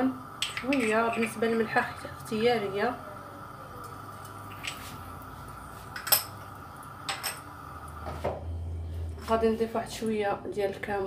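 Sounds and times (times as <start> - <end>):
steady background hum: 0.0 - 11.0
kitchenware clinking: 0.4 - 2.0, 3.9 - 4.9, 5.9 - 7.5.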